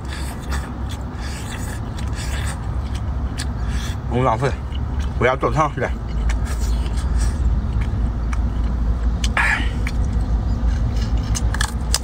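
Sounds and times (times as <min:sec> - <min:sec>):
person eating crab: 0:00.0 - 0:12.0
steady low rumble: 0:00.0 - 0:12.0.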